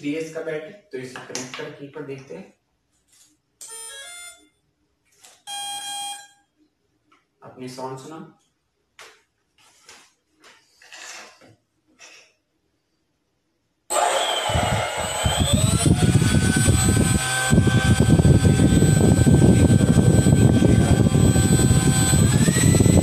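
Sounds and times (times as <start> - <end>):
electric ducted fan whine: 13.9 - 23.0.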